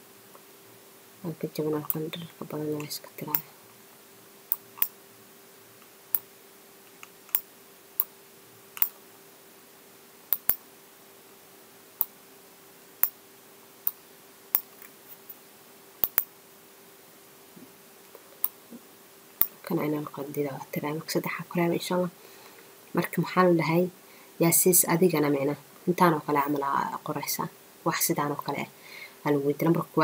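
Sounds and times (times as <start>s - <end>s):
faint steady hum: 0.0s - 30.0s
computer clicks: 10.3s - 10.6s, 16.0s - 16.3s.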